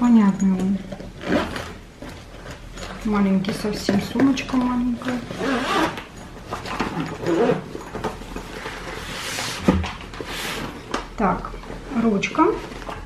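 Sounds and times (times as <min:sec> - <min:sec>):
zipper being opened: 0:01.2 - 0:01.8, 0:05.0 - 0:07.9.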